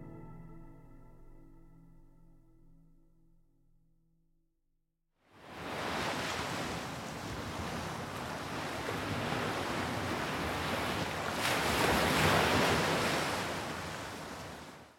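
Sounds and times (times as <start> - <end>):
sea waves rushing: 5.4 - 14.8.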